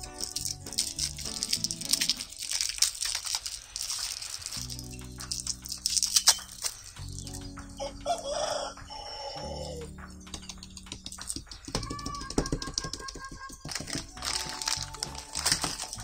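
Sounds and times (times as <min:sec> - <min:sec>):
music with steady bass line: 0:00.0 - 0:01.4, 0:04.6 - 0:08.8, 0:09.4 - 0:11.2.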